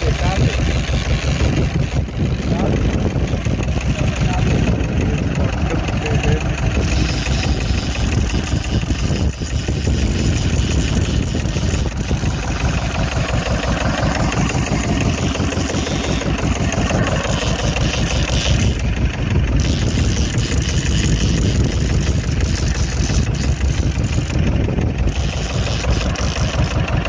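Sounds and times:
boat engine running: 0:00.0 - 0:27.0.

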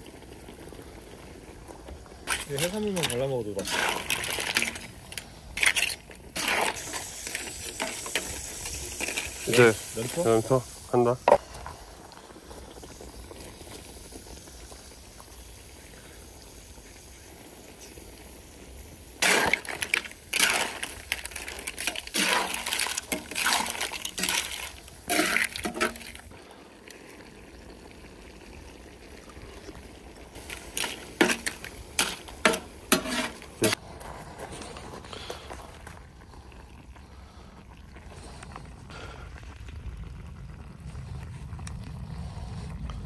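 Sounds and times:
sauce sizzling and bubbling: 0:00.0 - 0:33.9, 0:35.1 - 0:43.0
metal spatulas scraping a pan: 0:05.6 - 0:08.3, 0:21.8 - 0:26.1, 0:30.8 - 0:33.8.

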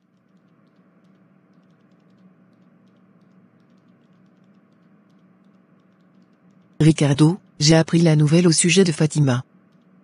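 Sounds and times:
low steady hum: 0:00.0 - 0:10.0.

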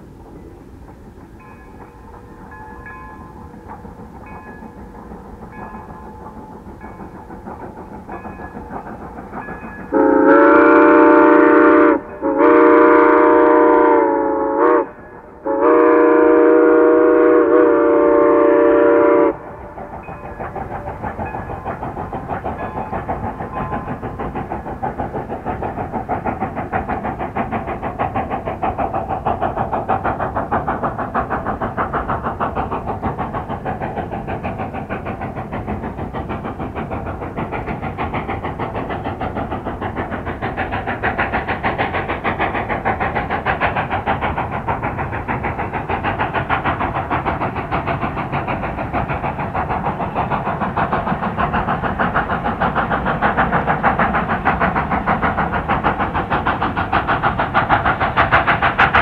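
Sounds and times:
steam locomotive exhaust chuffing: 0:00.0 - 0:59.0
steam locomotive chime whistle: 0:01.4 - 0:07.4, 0:09.5 - 0:21.8.

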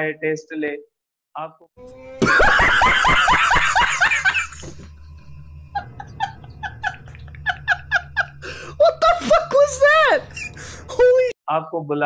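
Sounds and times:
man laughing hard: 0:02.2 - 0:09.4.

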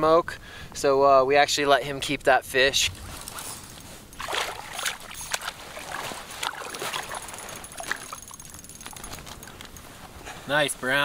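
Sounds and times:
water splashing and sloshing: 0:02.8 - 0:09.5
fish thrashing at surface: 0:02.9 - 0:09.5.

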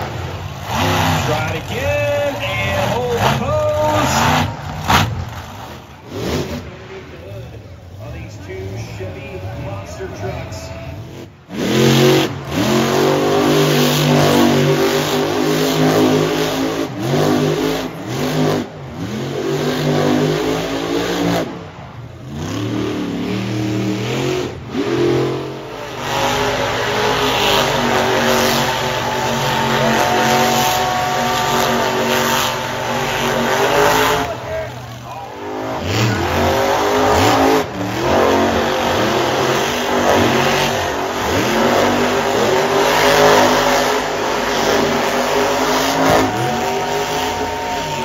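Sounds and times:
monster truck engine revving: 0:00.0 - 0:48.0.

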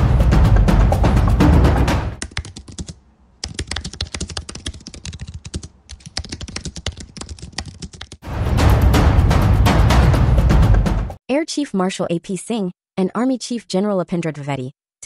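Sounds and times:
loud intro music: 0:00.0 - 0:02.2, 0:08.2 - 0:11.2
rapid computer keyboard typing: 0:02.2 - 0:08.2.

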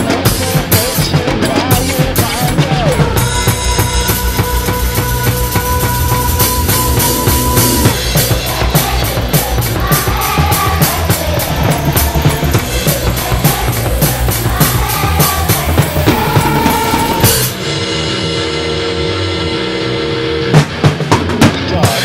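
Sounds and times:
backing music: 0:00.0 - 0:22.0
fast drum kit playing: 0:00.0 - 0:22.0
held tone: 0:03.2 - 0:17.8.

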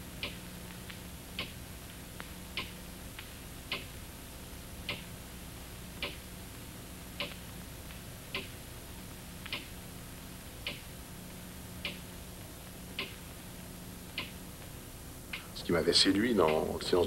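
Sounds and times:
low steady hum: 0:00.0 - 0:17.0
clock ticking: 0:00.2 - 0:00.4, 0:01.4 - 0:01.6, 0:03.7 - 0:04.0, 0:13.0 - 0:13.2, 0:16.2 - 0:17.0.

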